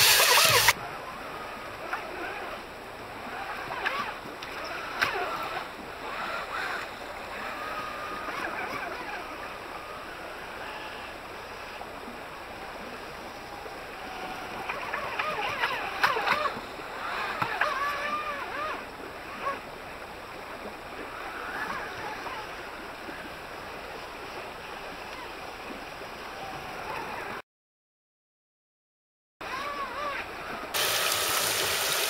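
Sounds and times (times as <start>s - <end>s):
whitewater creek rushing: 0.0s - 27.3s, 29.4s - 32.0s
jet boat drive whining: 0.0s - 27.4s, 29.4s - 32.0s.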